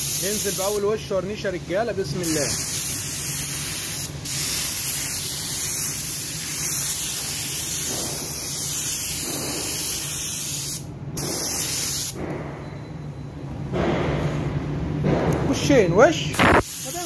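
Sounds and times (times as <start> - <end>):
paint spray gun hissing: 2.2 - 12.2, 16.4 - 17.0.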